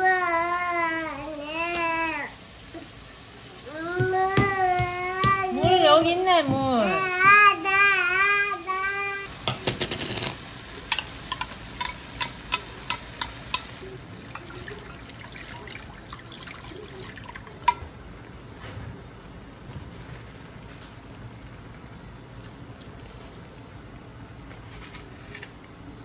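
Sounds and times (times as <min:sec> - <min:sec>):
toddler whining and crying: 0:00.0 - 0:02.9, 0:03.6 - 0:05.7, 0:06.7 - 0:09.3
frying pan clicks and pops: 0:09.4 - 0:14.5
water poured into pan: 0:11.3 - 0:18.0.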